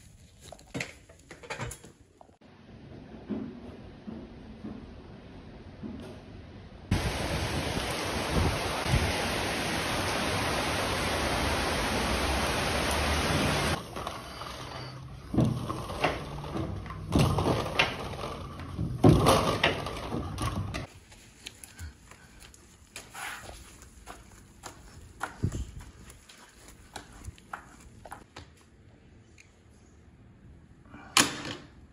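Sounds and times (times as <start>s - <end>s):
heavy rain pouring: 6.9s - 13.8s.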